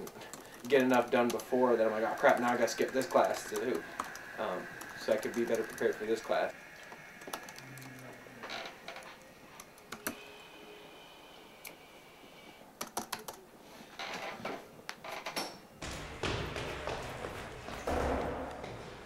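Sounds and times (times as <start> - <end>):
laptop keyboard typing: 0.0 - 8.2, 9.5 - 10.4, 12.8 - 13.4.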